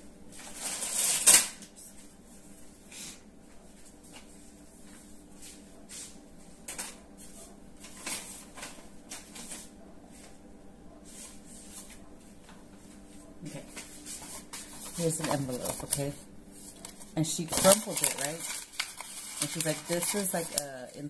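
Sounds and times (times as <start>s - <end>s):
paper rustling and clicks: 7.8s - 9.7s, 13.8s - 21.0s.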